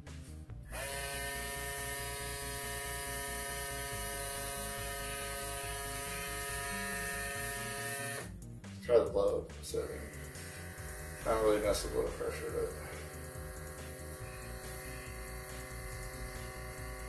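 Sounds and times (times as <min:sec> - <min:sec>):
compressor motor buzzing: 0:00.7 - 0:08.4, 0:09.9 - 0:17.0
airbrush air hissing: 0:10.0 - 0:17.0.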